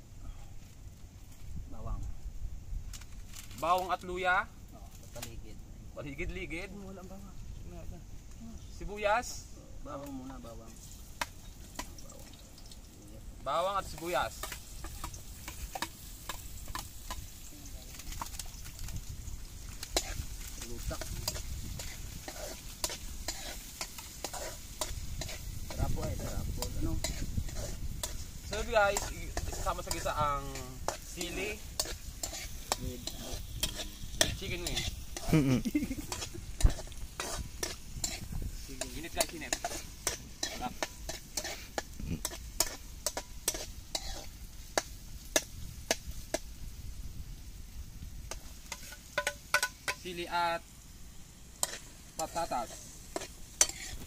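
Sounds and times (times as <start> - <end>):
onion and garlic sizzling in oil: 0.8 - 54.0
metal spatula scraping a wok: 13.8 - 18.4, 19.6 - 46.8, 48.2 - 50.3, 51.4 - 54.0
metal spatula clinking against wok: 38.8 - 46.0, 48.3 - 50.0, 51.6 - 54.0.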